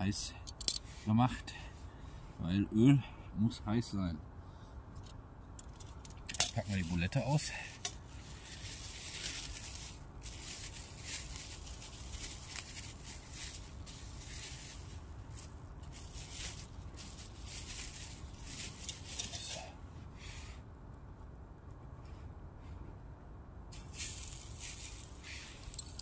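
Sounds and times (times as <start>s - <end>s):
plastic wrap crinkling: 7.7s - 19.5s.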